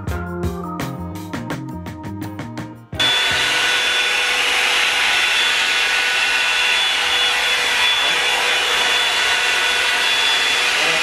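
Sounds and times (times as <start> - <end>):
background music: 0.0 - 3.5
hot-air brush blowing: 3.0 - 11.0.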